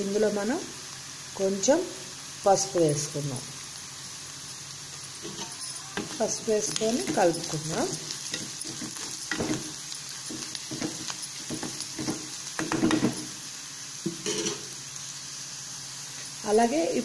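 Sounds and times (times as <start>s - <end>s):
onions sizzling in hot oil: 0.0s - 17.0s
spatula scraping: 5.1s - 13.4s.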